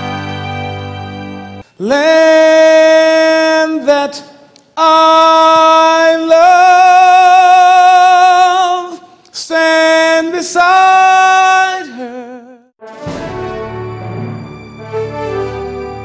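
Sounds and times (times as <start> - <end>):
man singing unaccompanied: 1.7 - 12.8.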